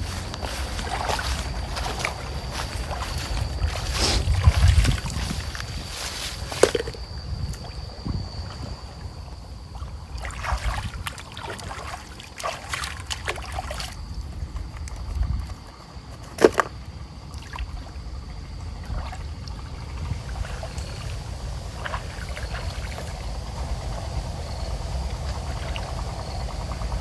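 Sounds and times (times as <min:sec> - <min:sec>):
low rumble: 0:00.0 - 0:11.1, 0:16.9 - 0:27.0
water splashing and sloshing: 0:00.0 - 0:27.0.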